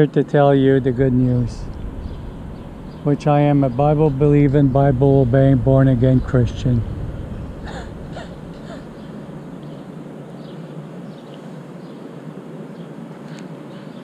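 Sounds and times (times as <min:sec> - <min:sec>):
distant traffic hum: 0:00.0 - 0:11.6
small click: 0:13.3 - 0:13.5.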